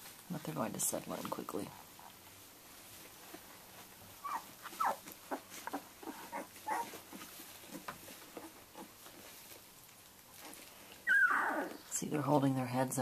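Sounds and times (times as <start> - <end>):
soft rustling on bedding: 0.0 - 13.0
puppies whimpering and squeaking: 4.2 - 8.9, 11.1 - 11.9.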